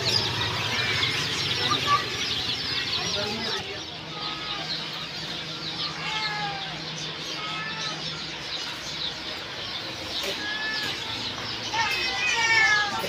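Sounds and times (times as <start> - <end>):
chicks cheeping: 0.0 - 13.0.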